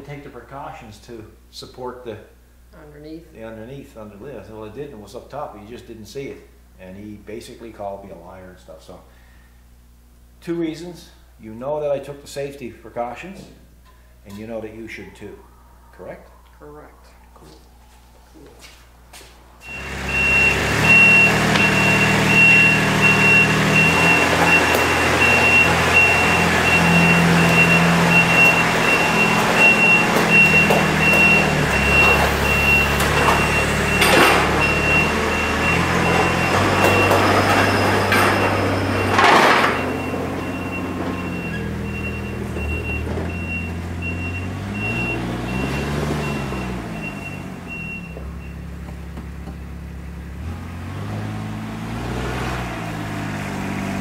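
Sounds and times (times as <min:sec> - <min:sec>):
loud rushes of noise: 0:19.6 - 0:40.6
backup alarm short high beeps: 0:19.6 - 0:48.6
utility vehicle engine running: 0:19.6 - 0:54.0.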